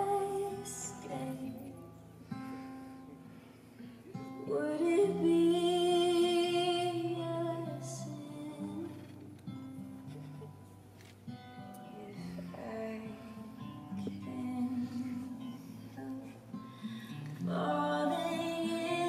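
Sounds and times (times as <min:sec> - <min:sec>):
woman singing: 0:00.0 - 0:02.0, 0:04.1 - 0:09.6, 0:11.8 - 0:19.0
acoustic guitar: 0:00.0 - 0:19.0.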